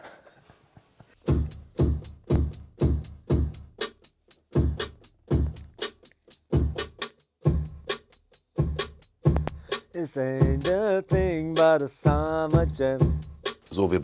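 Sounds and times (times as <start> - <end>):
crisp hi-hat ticks: 1.2 - 14.0
deep kick drums: 1.3 - 3.8, 8.6 - 9.7, 10.4 - 13.4.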